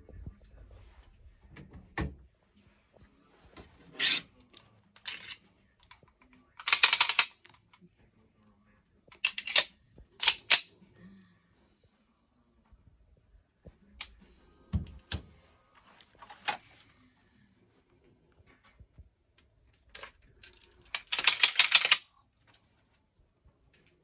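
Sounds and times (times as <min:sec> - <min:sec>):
pistol metallic clicks: 0:09.3 - 0:10.7.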